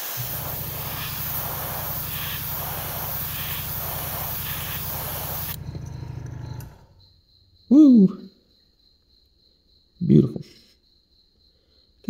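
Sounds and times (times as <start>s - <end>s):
airbrush hissing: 0.0s - 7.0s.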